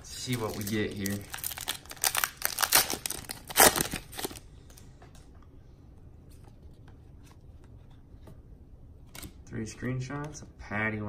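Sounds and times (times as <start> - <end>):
foil wrapper crinkling: 0.1 - 4.4.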